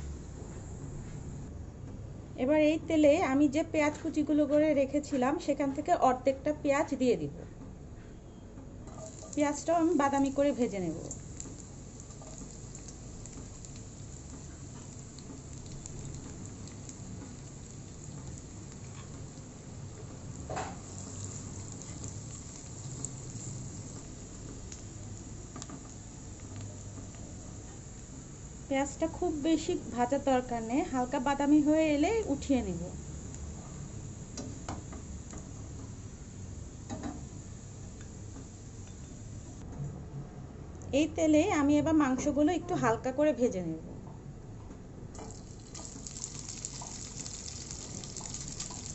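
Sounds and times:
steady low hum: 0:00.0 - 0:03.0
onions sizzling in oil: 0:08.9 - 0:39.6, 0:45.2 - 0:48.9
small crackles: 0:11.0 - 0:28.1, 0:45.2 - 0:48.9.

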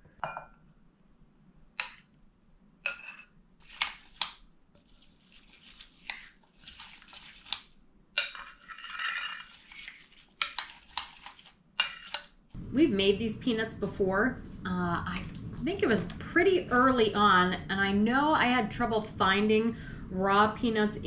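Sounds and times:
metal spoon clinking against bowls: 0:02.8 - 0:03.3, 0:08.2 - 0:09.8
stirring and scraping: 0:02.8 - 0:12.6.

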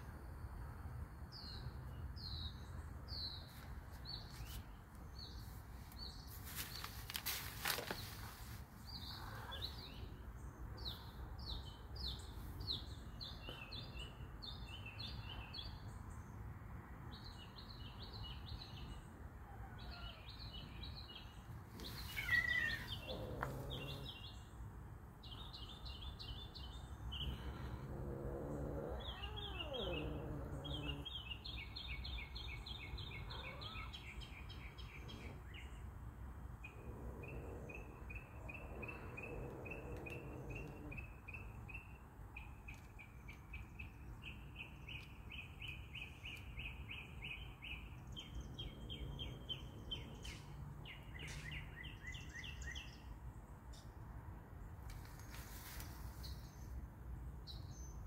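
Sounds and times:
birds chirping: 0:01.3 - 0:16.2, 0:17.2 - 0:53.8
cat growling: 0:22.1 - 0:24.2, 0:27.2 - 0:31.2, 0:36.7 - 0:41.1.

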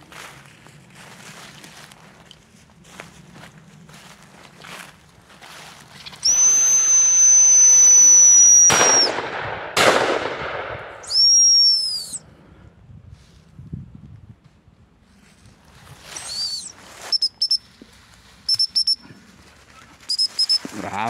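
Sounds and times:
dog whistle blast: 0:06.2 - 0:09.2, 0:11.0 - 0:12.2, 0:16.2 - 0:17.6, 0:18.5 - 0:19.0, 0:20.1 - 0:20.6
shotgun shots with echo: 0:08.7 - 0:11.0.

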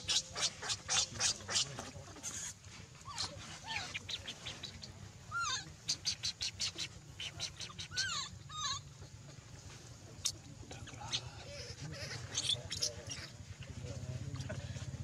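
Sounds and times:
squeaky pitch-bending calls: 0:05.3 - 0:08.9.

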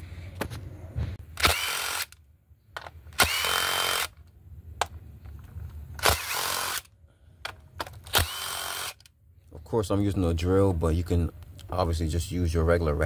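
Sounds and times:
cordless drill motor whine: 0:01.4 - 0:02.1, 0:03.2 - 0:04.2, 0:06.0 - 0:06.9, 0:08.1 - 0:09.1.

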